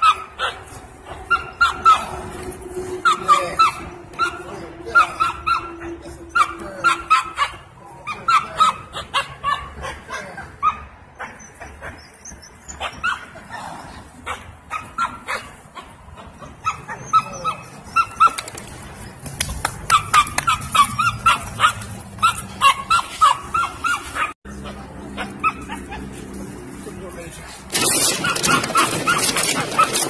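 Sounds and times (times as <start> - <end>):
puppies yapping: 0.0 - 26.5, 27.7 - 30.0
sharp clicks and crackles: 27.7 - 30.0.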